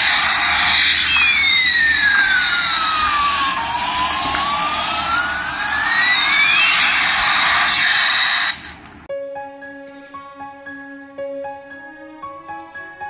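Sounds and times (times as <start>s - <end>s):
toy jet engine sound effect: 0.0s - 8.8s.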